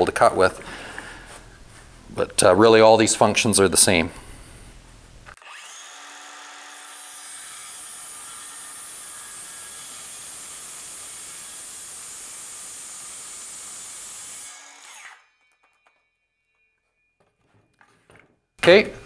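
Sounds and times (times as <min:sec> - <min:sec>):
circular saw cutting: 0:05.4 - 0:16.7.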